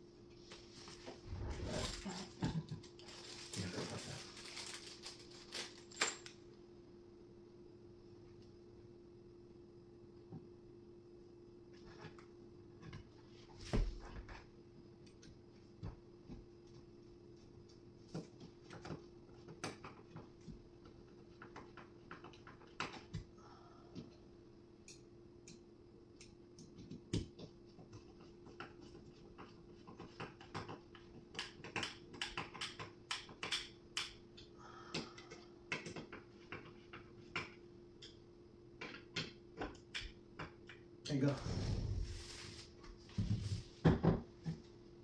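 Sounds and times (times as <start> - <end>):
faint steady hum: 0.0 - 45.0
furniture parts clicking and tapping: 34.9 - 38.2.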